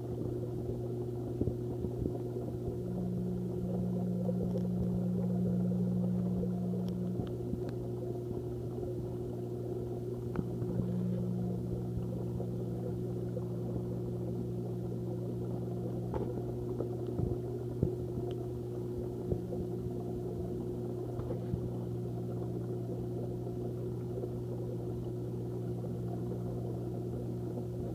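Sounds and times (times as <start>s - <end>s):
aquarium equipment humming: 0.0s - 27.9s
faint ticks: 0.1s - 27.9s.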